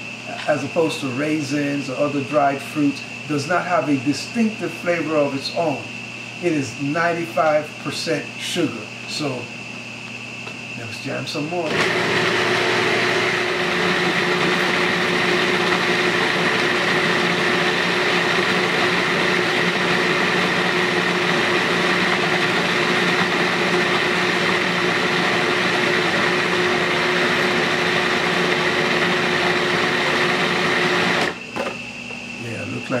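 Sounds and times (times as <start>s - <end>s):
food processor motor whining: 11.4s - 33.0s.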